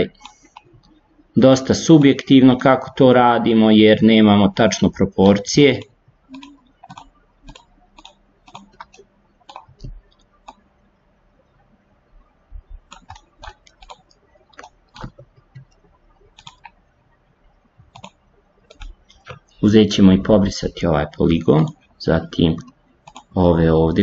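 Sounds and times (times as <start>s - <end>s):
mouse and keyboard clicking: 0.1s - 1.0s, 5.8s - 10.7s, 12.7s - 16.8s, 17.8s - 19.5s, 22.6s - 23.4s.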